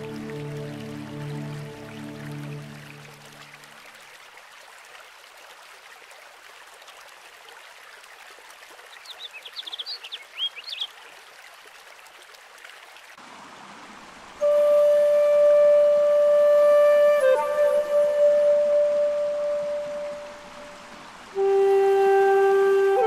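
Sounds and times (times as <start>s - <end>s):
stream running: 0.0s - 23.0s
bird chirping: 9.0s - 10.9s.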